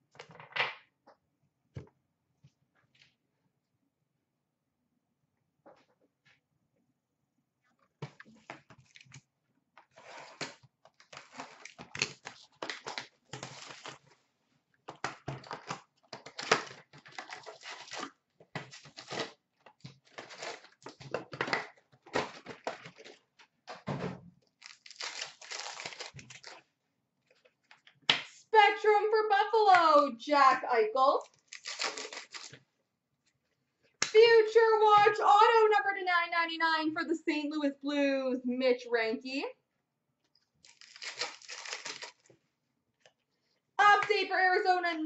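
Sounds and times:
card wrappers crinkling: 10.0s - 14.2s, 15.0s - 21.4s, 24.6s - 26.6s, 31.3s - 32.6s, 40.6s - 42.4s.

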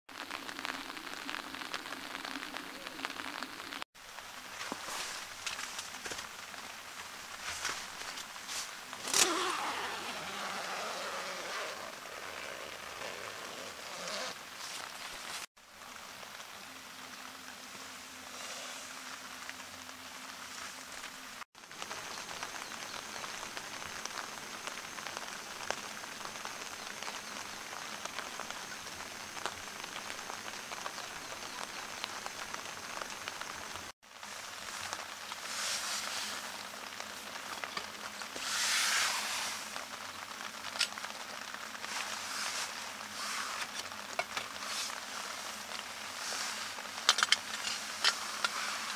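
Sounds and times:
rain pattering on tent fabric: 0.1s - 48.9s.

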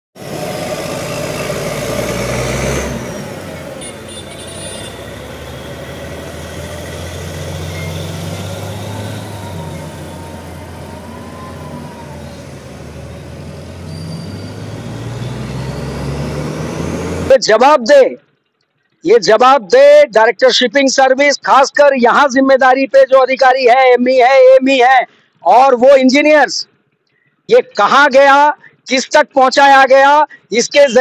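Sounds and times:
crane diesel engine running: 0.2s - 17.4s.

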